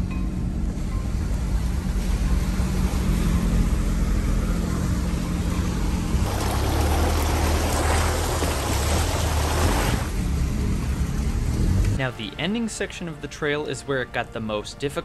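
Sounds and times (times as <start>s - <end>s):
diesel engine running: 0.0s - 12.0s
tyres splashing through mud: 6.2s - 10.7s.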